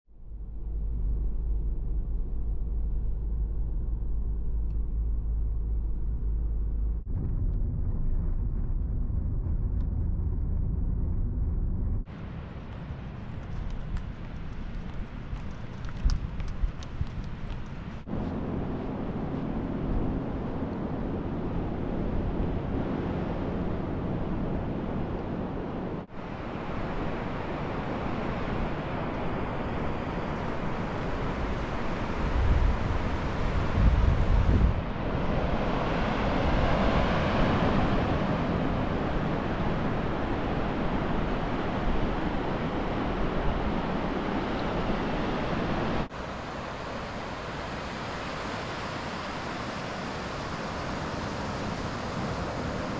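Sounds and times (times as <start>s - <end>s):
wind buffeting microphone: 1.0s - 52.9s
ocean surf washing onto beach: 12.1s - 52.9s.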